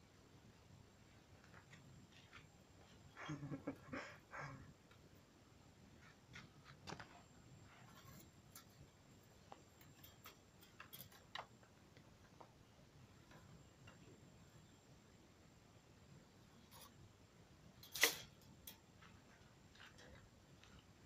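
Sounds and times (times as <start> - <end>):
faint clicks and ticks: 6.0 - 14.6, 17.8 - 21.0.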